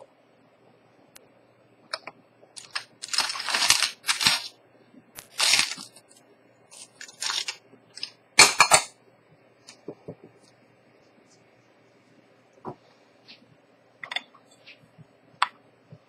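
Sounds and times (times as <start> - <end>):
crunching crinkling noise: 2.4 - 8.2.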